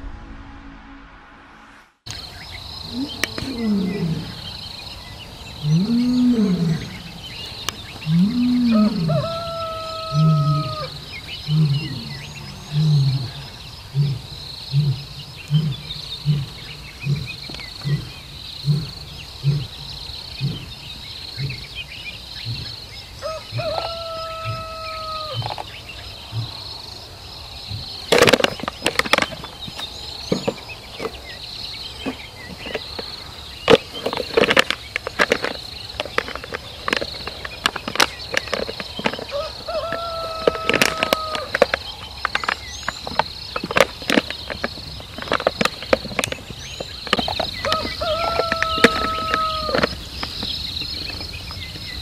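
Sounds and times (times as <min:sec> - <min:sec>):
crickets trilling: 0:02.1 - 0:52.0
lion roaring and grunting: 0:02.8 - 0:04.6, 0:05.6 - 0:07.2
sharp crackles: 0:31.9 - 0:51.6.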